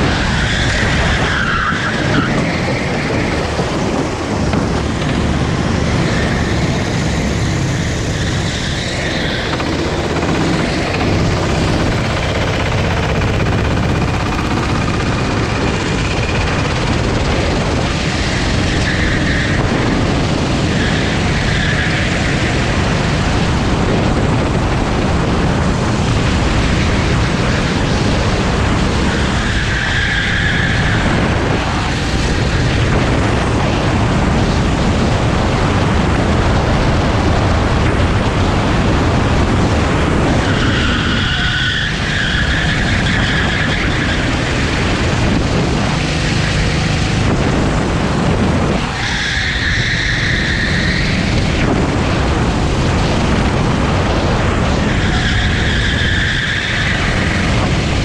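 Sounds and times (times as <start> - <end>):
kart engine running hard: 0.0 - 58.0
tyre squeals: 0.2 - 13.4.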